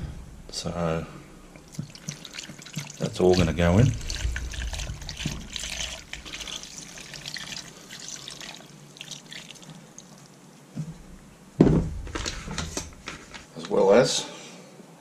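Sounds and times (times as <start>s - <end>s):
wine pouring into a metal pot: 1.6s - 10.4s
soft knock: 11.6s - 12.2s.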